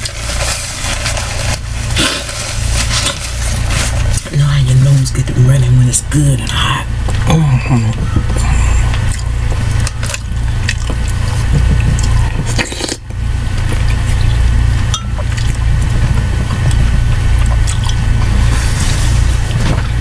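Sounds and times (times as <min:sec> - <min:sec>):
steady low hum: 0:00.0 - 0:20.0
chewing: 0:07.0 - 0:19.8
slurping: 0:07.0 - 0:19.9.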